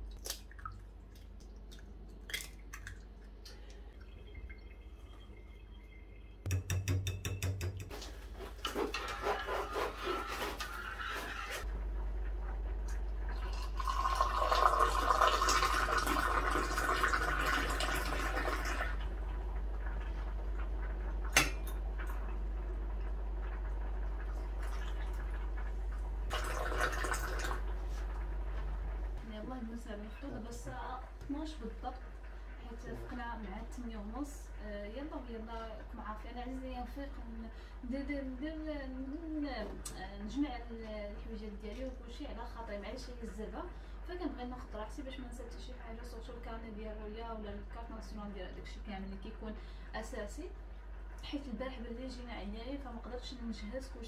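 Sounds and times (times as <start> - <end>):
glass clink: 6.5 - 7.9
fork beating eggs in glass bowl: 6.5 - 8.0
metal spoon scraping saucepan: 8.7 - 11.6
tea pouring into glass: 13.3 - 18.9, 26.3 - 27.6.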